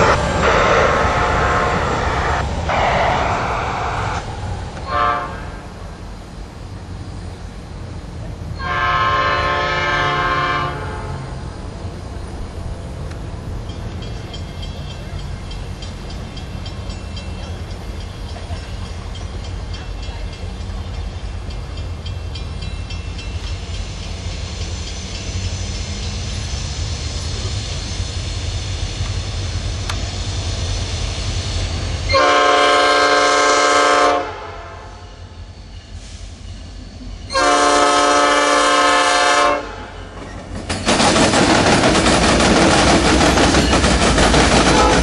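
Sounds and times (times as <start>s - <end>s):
train air horn blast: 0.0s - 4.2s, 4.8s - 5.8s, 8.6s - 11.4s, 32.1s - 35.1s, 37.3s - 40.0s, 44.6s - 45.0s
diesel locomotive engine rumbling: 0.0s - 45.0s.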